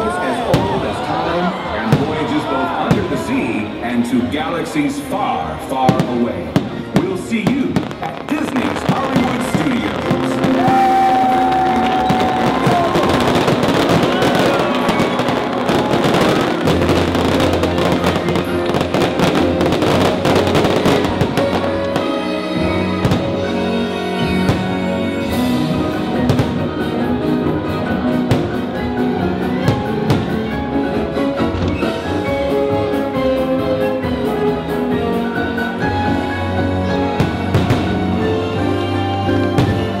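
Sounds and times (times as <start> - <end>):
fireworks bursting: 5.8 - 26.9, 37.2 - 40.0.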